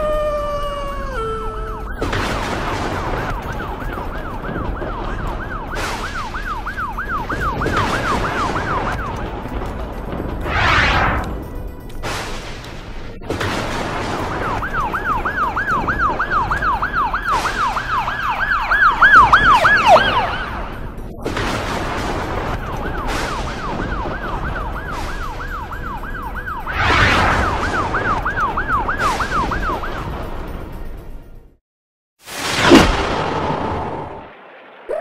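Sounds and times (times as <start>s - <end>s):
cartoon ambulance siren yelping: 0.0s - 2.4s, 3.0s - 9.1s, 14.4s - 20.8s, 27.3s - 30.0s
noisy rush: 7.4s - 11.5s, 26.6s - 28.5s.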